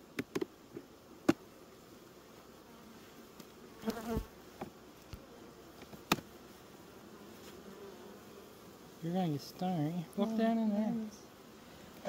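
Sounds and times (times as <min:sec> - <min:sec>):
bees buzzing: 0:00.0 - 0:12.0
hive tool scraping frames: 0:03.0 - 0:08.8.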